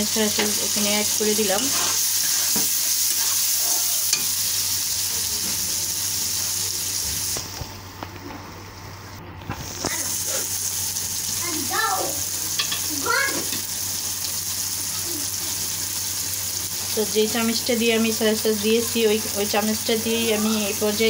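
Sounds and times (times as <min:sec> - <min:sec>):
food sizzling in a pan: 0:00.0 - 0:07.7, 0:09.5 - 0:21.0
spatula scraping pan: 0:00.2 - 0:04.3.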